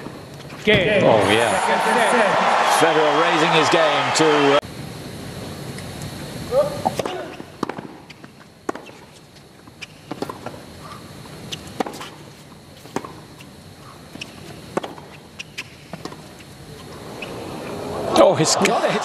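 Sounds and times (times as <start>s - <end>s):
tennis racket striking ball: 6.9s - 9.2s, 9.8s - 10.6s, 11.5s - 13.5s, 14.1s - 16.4s
tennis ball bouncing on hard court: 6.9s - 10.6s, 11.5s - 17.4s.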